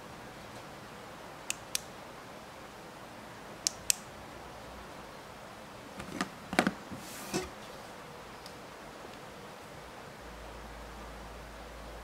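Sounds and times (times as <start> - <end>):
faint steady hiss: 0.0 - 12.0
small switch clicking: 3.6 - 4.1.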